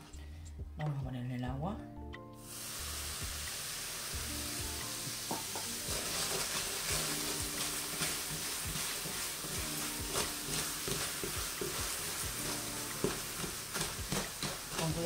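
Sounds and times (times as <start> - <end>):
almonds sizzling in a frying pan: 2.4 - 15.0
wooden spoon scraping a pan: 5.3 - 15.0.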